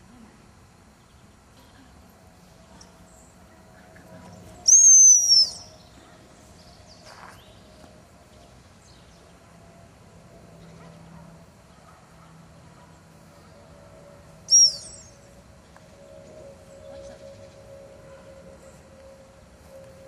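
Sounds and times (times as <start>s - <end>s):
high-pitched dog whistle blast: 4.7s - 5.7s, 14.5s - 15.2s.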